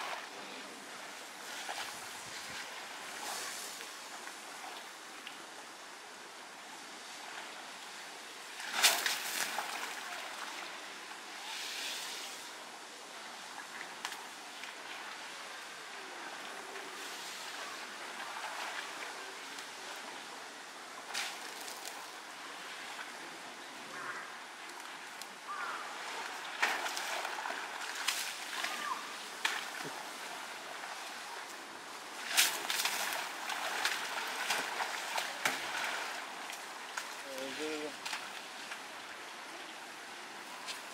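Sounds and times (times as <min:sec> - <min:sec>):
steady outdoor hiss: 0:00.0 - 0:40.9
hiss of mud: 0:03.1 - 0:04.0, 0:11.4 - 0:12.6.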